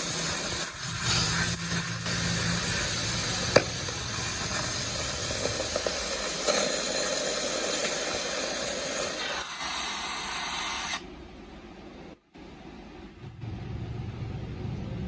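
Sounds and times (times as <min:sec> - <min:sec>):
cutting torch hissing: 0:00.0 - 0:11.0.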